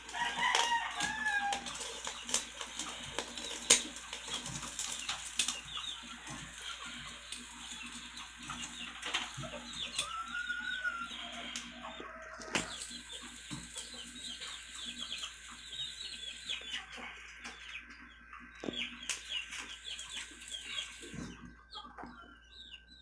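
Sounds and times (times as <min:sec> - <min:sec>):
sharp pops from grilling meat: 0:00.0 - 0:10.2, 0:12.4 - 0:15.8
birds chirping: 0:00.0 - 0:23.0.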